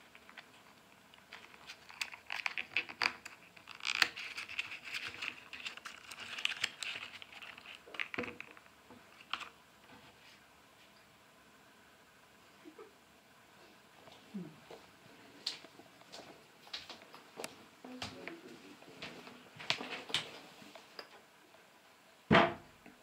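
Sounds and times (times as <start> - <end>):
foil wrapper crinkling and tearing: 1.2 - 9.5.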